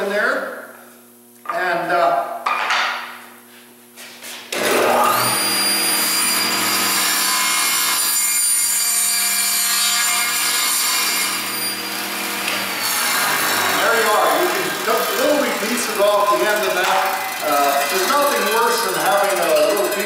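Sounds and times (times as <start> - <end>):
saw cutting wood: 4.5 - 20.0
table saw motor whine: 4.5 - 20.0.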